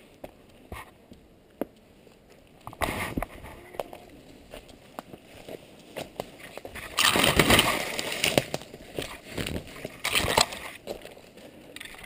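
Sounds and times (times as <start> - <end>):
rustling of ferns and undergrowth: 0.0 - 12.0
twigs snapping: 3.8 - 12.0.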